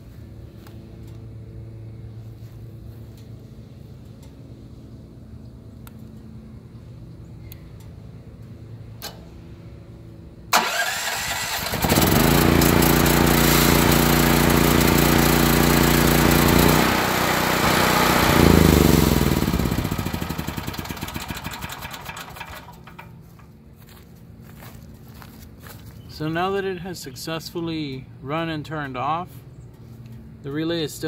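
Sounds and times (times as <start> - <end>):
generator engine running: 9.9 - 25.3
generator engine cranking: 10.5 - 23.4.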